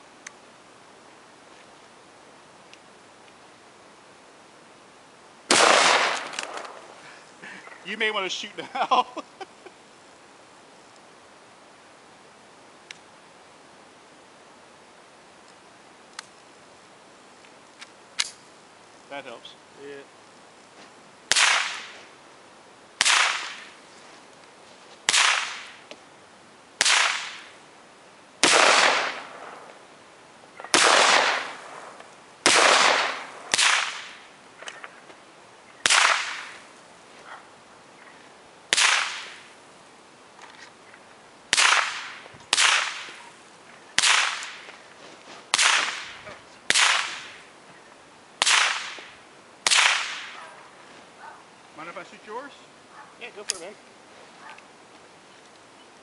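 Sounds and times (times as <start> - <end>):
gunshots with echo: 5.5 - 6.6, 28.4 - 29.4, 32.5 - 34.1.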